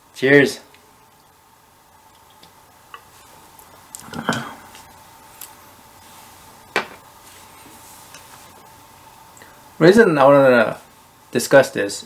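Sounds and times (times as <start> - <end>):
person swallowing: 4.0 - 4.8.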